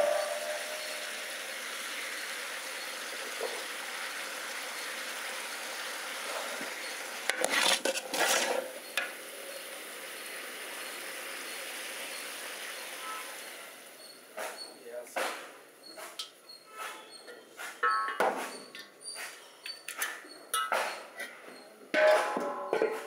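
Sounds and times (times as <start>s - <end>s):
vegetables sizzling in a pot: 0.0s - 14.6s
metal stirrer scraping a pot: 7.3s - 9.0s.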